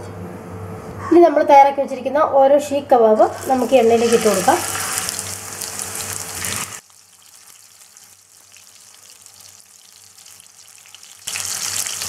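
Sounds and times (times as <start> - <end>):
meat sizzling in oil: 3.3 - 12.0.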